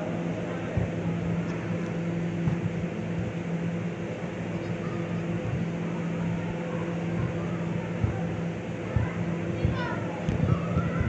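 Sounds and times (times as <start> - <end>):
blower fans humming: 0.0 - 11.0
faint voices: 0.0 - 11.0
dull thuds: 2.4 - 3.3.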